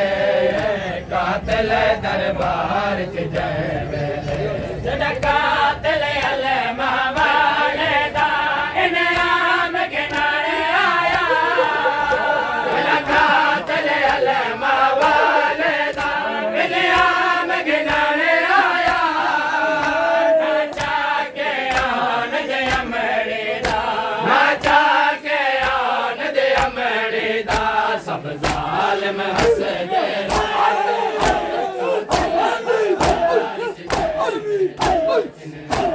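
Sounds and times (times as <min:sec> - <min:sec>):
men chanting in unison: 0:00.0 - 0:35.9
hands slapping chests: 0:09.0 - 0:10.4, 0:11.0 - 0:16.3, 0:16.9 - 0:17.2, 0:17.8 - 0:18.2, 0:18.8 - 0:20.1, 0:20.7 - 0:21.0, 0:21.6 - 0:22.0, 0:22.6 - 0:22.9, 0:23.6 - 0:23.9, 0:25.6 - 0:25.9, 0:26.5 - 0:26.8, 0:27.5 - 0:27.8, 0:28.4 - 0:35.9.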